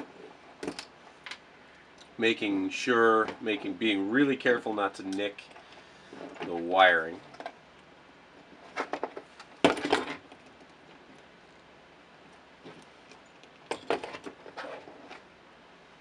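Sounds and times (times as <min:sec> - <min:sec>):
plastic and tool clatter: 0:08.6 - 0:10.7, 0:12.6 - 0:15.3.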